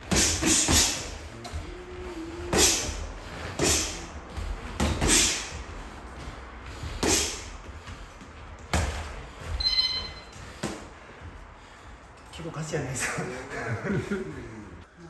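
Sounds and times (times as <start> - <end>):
boxing gloves hitting: 0.0 - 1.6, 2.4 - 5.7, 8.6 - 9.2
brief high squeak: 9.6 - 10.3.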